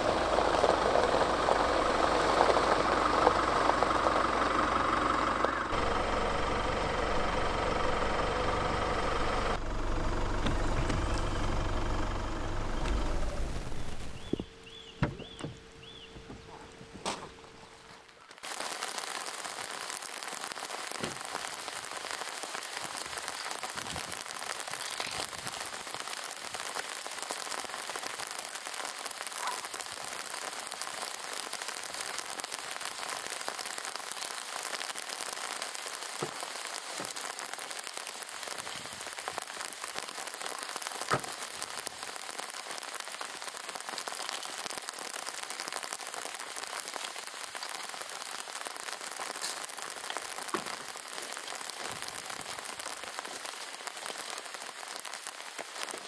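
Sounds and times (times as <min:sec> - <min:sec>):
steady rain hissing: 0:00.0 - 0:56.0
raindrop ticks: 0:00.2 - 0:04.6, 0:18.3 - 0:56.0.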